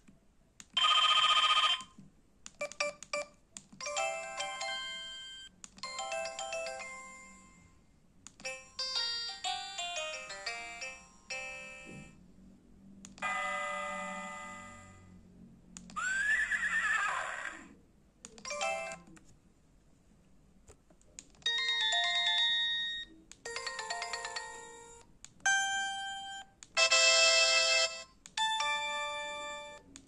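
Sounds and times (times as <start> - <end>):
phone jingles and chimes: 21.5 - 24.7.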